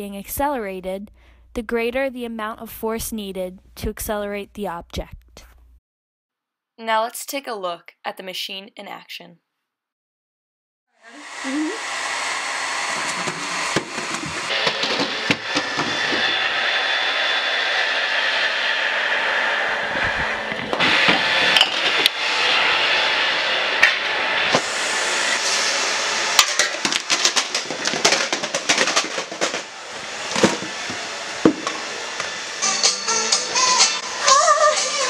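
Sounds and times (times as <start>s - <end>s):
objects toppling and clattering: 26.4s - 29.7s
balls rolling along tracks: 26.6s - 31.8s.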